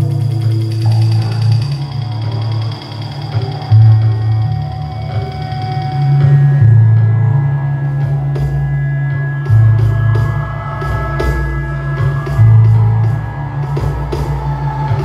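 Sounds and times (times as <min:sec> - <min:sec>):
deep bass line: 0:00.0 - 0:15.0
drums keeping steady beat: 0:09.5 - 0:15.0.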